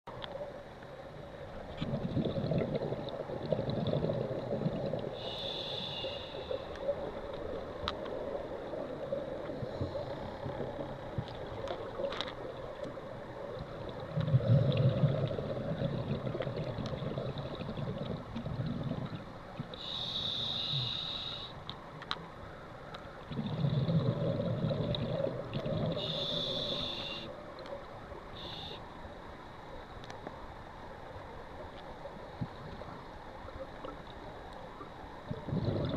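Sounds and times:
exhaled bubbles rumbling: 1.6 - 5.2, 8.7 - 19.9, 23.2 - 26.5, 35.2 - 35.9
regulator inhale hiss: 5.0 - 6.9, 19.7 - 21.6, 25.8 - 27.4, 28.3 - 28.9.

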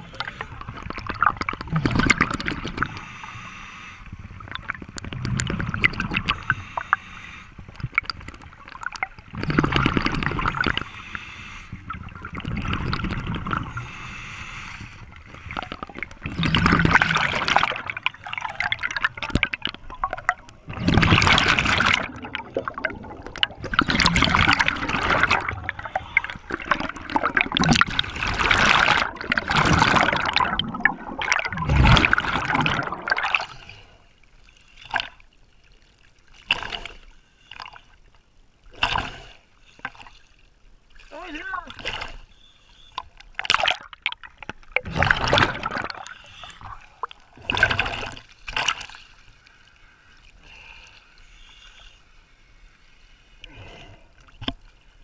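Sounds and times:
exhaled bubbles gurgling underwater: 0.0 - 34.0, 41.8 - 48.9
diver inhaling through regulator: 2.8 - 4.2, 6.2 - 7.6, 10.4 - 12.0, 13.6 - 16.0, 46.0 - 47.0.

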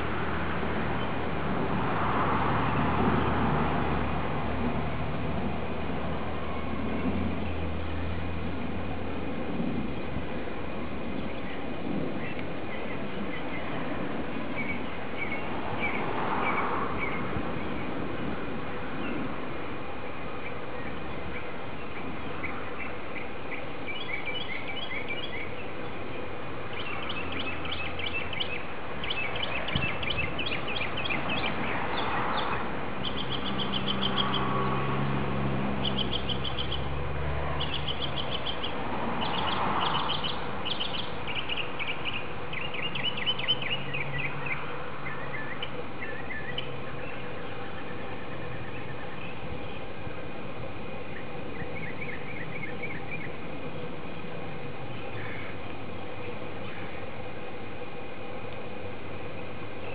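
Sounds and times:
birds chirping: 11.0 - 18.1, 20.1 - 34.9, 35.7 - 57.6.

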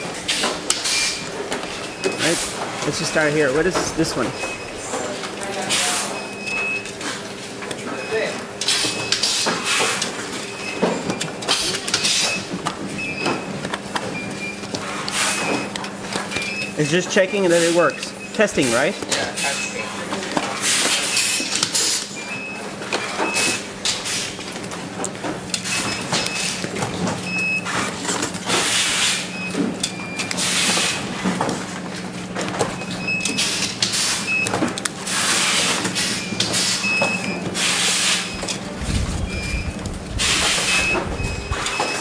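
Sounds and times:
machinery humming: 0.0 - 7.6, 24.8 - 42.0
high beeps: 38.3 - 39.8, 40.4 - 42.0.

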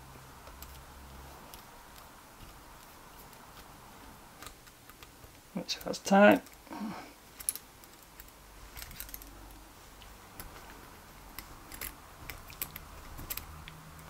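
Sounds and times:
small metallic clicks and taps: 11.3 - 14.0.

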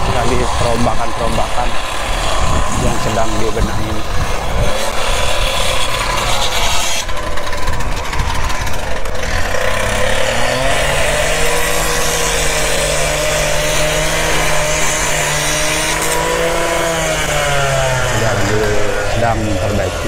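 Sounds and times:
diesel engine running and revving: 0.0 - 20.0.

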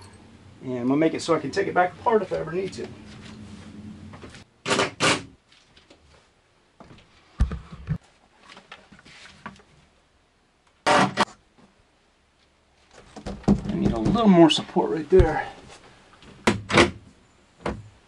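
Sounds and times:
knocks and thumps from panel: 13.2 - 14.3.

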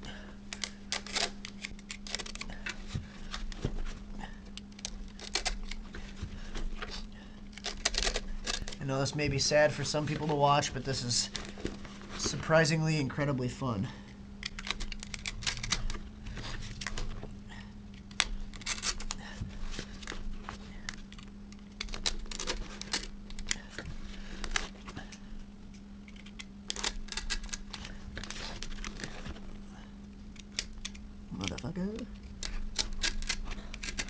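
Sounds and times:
low hum: 0.0 - 34.0.

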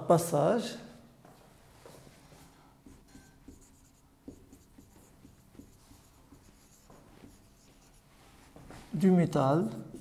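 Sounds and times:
marker squeaking on whiteboard: 2.9 - 8.0.

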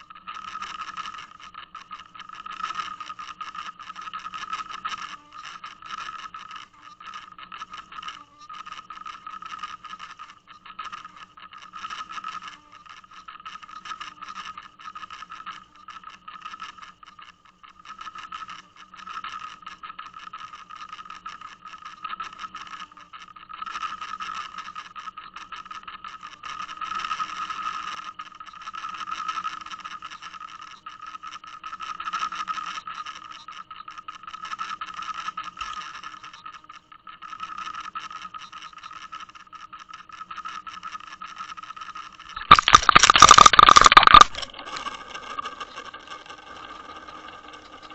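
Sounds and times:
boat motor whining underwater: 42.4 - 47.9
clattering and scraping: 42.4 - 47.9.

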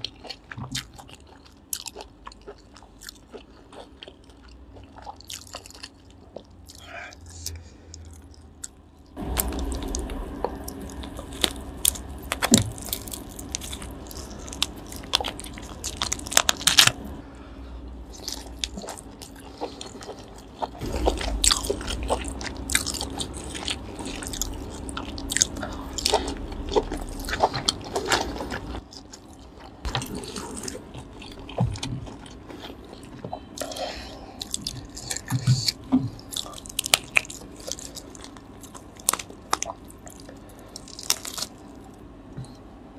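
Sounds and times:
chewing: 0.0 - 17.1, 18.0 - 42.6
lobster shell clicking and crackling: 11.2 - 17.0.

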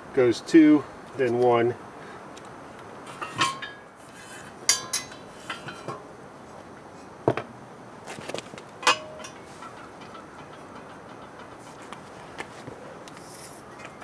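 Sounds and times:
metal parts clanking on pavement: 3.0 - 6.2, 7.2 - 14.0.

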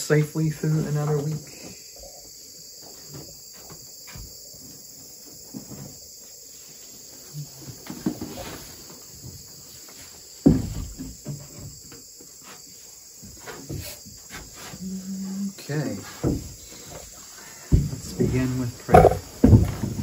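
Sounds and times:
crickets and insects chirping: 0.0 - 20.0
knocks and rustling at wooden pulpit: 0.7 - 15.0, 16.0 - 20.0
heavy thump: 18.9 - 19.9.

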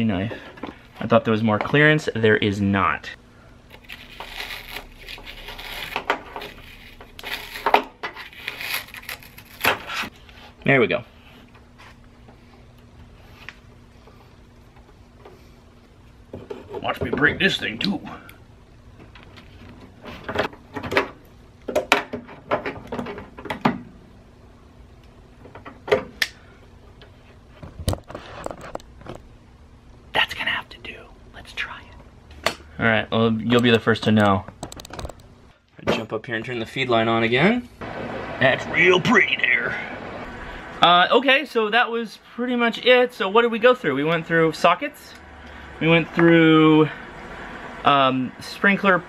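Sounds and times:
metal tool scraping foam: 4.0 - 10.1.

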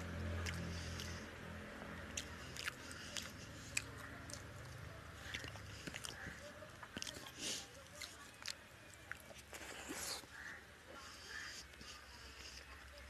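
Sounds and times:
wet chewing clicks and smacks: 0.0 - 10.3.

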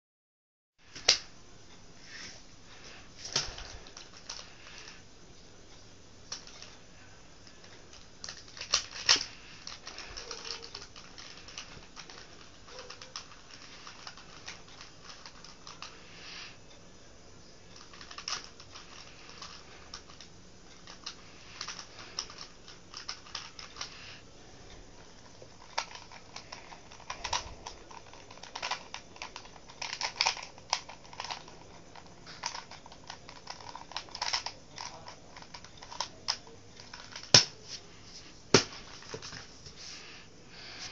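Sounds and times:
plastic puzzle cube clicking: 7.9 - 15.9, 17.8 - 23.9, 25.2 - 37.6.

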